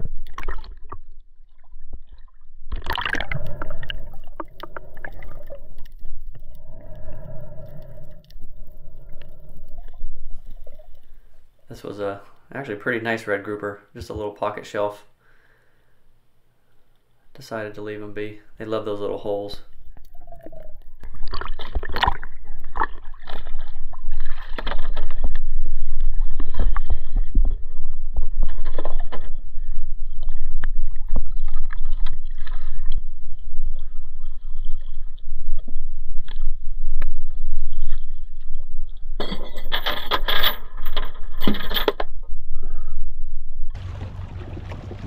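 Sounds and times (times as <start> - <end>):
water splashing and sloshing: 0.0 - 14.3, 16.8 - 42.0, 43.7 - 45.0
water buffeting microphone: 0.0 - 14.8, 43.7 - 45.0.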